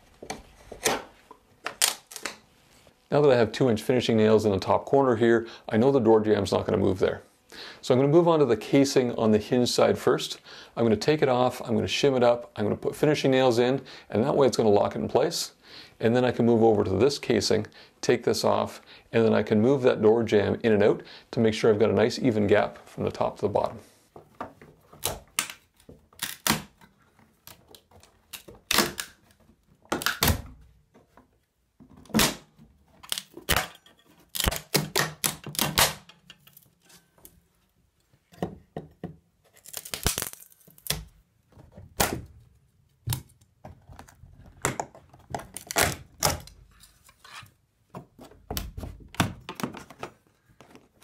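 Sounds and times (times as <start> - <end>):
wood cracking and snapping: 27.4 - 29.3, 32.0 - 36.6, 39.6 - 41.1, 44.6 - 46.6
wood scraping: 46.7 - 48.4.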